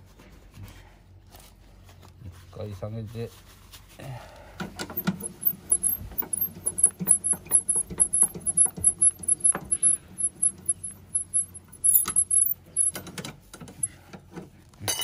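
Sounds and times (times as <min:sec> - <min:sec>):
car jack crank clicking and squeaking: 0:04.7 - 0:14.0.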